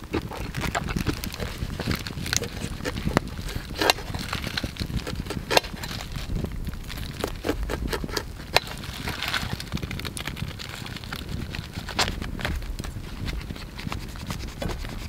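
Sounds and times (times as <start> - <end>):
knife slicing corn kernels: 0.0 - 6.2.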